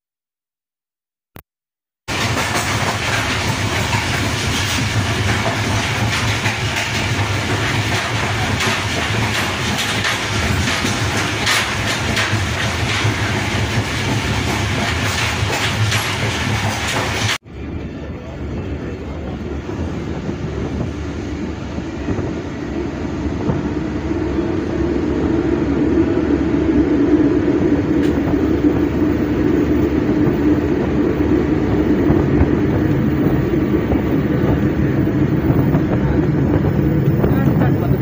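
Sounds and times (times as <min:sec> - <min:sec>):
train wheels rumbling on track: 0:02.1 - 0:38.0
rushing air: 0:19.2 - 0:38.0.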